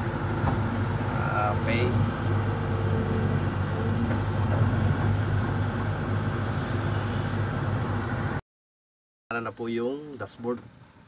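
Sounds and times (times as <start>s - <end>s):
excavator diesel engine running: 0.0s - 8.4s.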